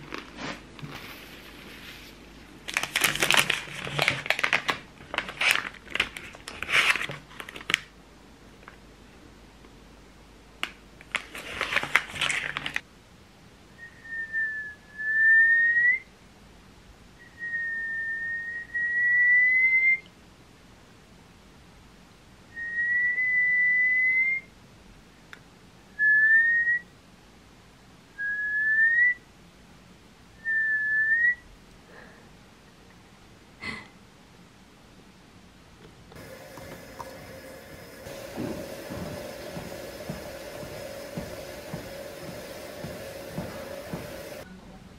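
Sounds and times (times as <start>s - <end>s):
plastic packet crinkling: 0.0s - 1.2s, 2.6s - 7.9s, 11.0s - 12.8s.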